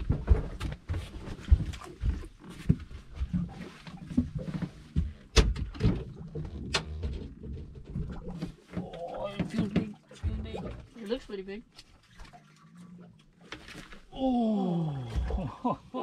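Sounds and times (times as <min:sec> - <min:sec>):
knocks and thumps on boat: 0:00.0 - 0:11.3.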